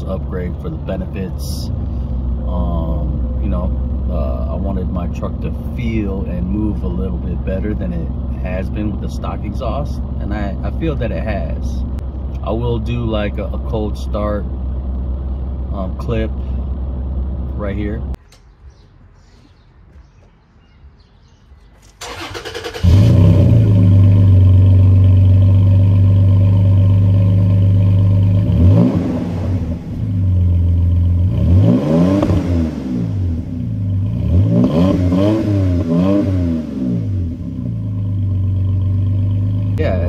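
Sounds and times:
engine cranking: 0:21.8 - 0:23.6
loud fast engine idle: 0:22.0 - 0:23.1.

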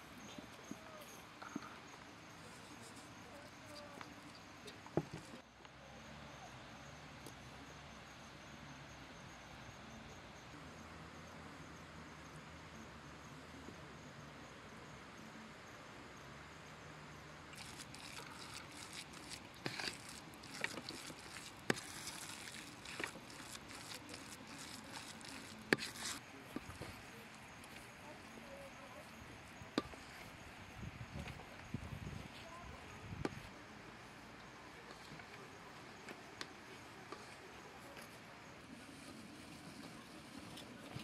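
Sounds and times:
faint outdoor ambience: 0:00.0 - 0:41.0
hand kneading wet mixture: 0:17.5 - 0:26.8.

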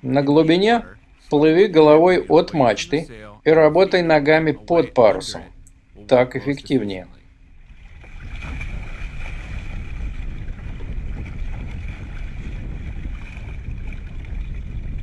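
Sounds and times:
water noise: 0:00.0 - 0:15.0
wind rumble on microphone: 0:07.2 - 0:15.0.

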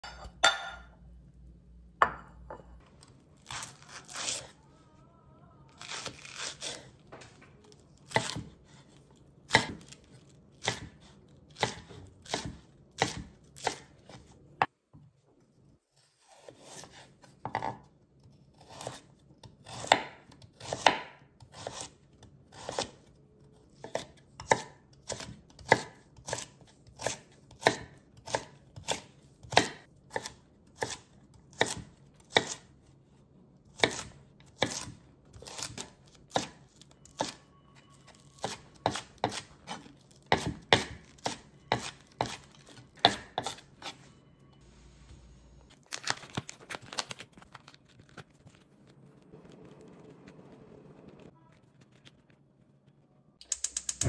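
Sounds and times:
knife chopping vegetables: 0:05.8 - 0:14.7, 0:15.9 - 0:23.1, 0:23.7 - 0:32.7, 0:33.6 - 0:44.1.

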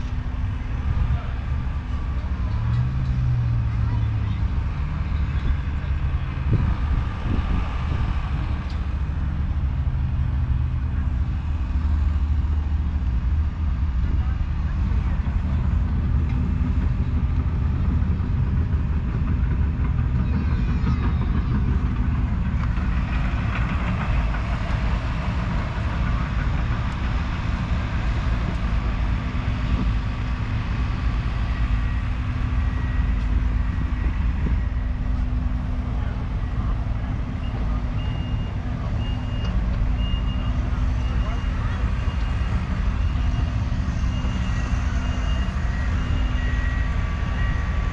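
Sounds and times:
faint engine hum: 0:00.0 - 0:47.9
low outdoor rumble: 0:00.0 - 0:47.9
reversing alarm beeps: 0:37.3 - 0:47.9.

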